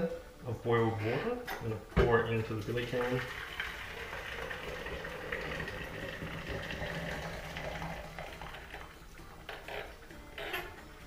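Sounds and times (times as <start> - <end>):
water pouring into a metal can: 2.5 - 10.1.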